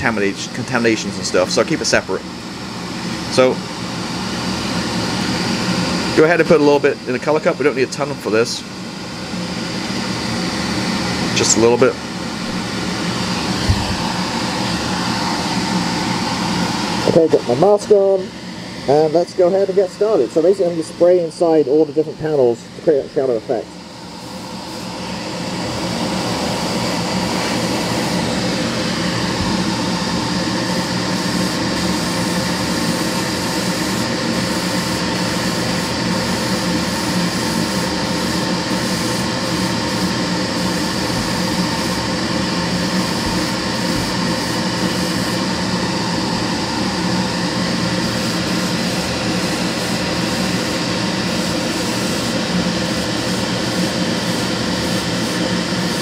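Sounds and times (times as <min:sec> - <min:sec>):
extractor fan hum: 0:00.0 - 0:56.0
airbrush hissing: 0:12.3 - 0:17.0, 0:24.1 - 0:25.2, 0:26.0 - 0:45.6, 0:46.3 - 0:56.0.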